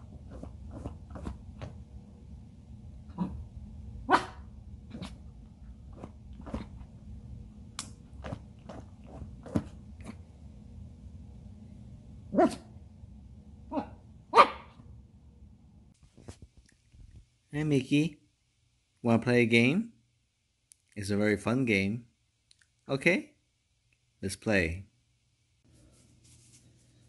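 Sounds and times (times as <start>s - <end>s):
dog barking: 4.1s - 5.1s, 12.3s - 12.7s, 13.7s - 14.8s.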